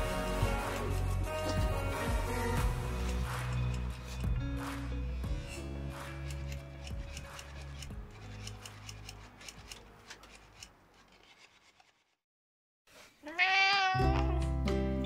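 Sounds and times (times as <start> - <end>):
background music: 0.0 - 10.7, 14.0 - 15.0
cat meowing: 13.2 - 14.4.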